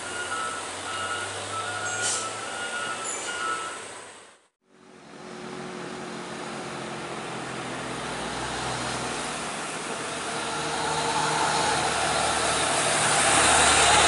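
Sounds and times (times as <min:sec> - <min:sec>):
road traffic noise: 0:00.0 - 0:14.0
truck passing close by: 0:00.0 - 0:14.0
vehicle engine running: 0:04.6 - 0:14.0.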